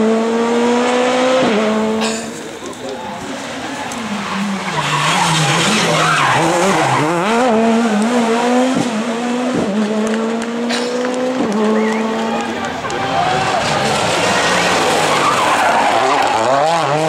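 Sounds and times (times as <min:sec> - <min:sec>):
rally car engine revving: 0:00.0 - 0:17.0
tyres sliding on gravel: 0:02.3 - 0:07.2, 0:12.3 - 0:17.0.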